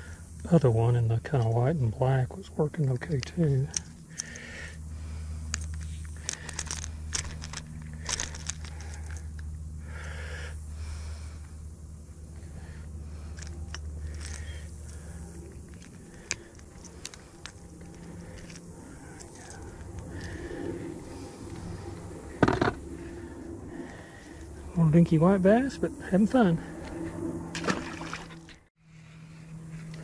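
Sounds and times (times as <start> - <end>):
low hum: 0.0 - 30.0
handling clicks and rustles: 2.7 - 4.5, 5.4 - 9.5, 13.2 - 20.4.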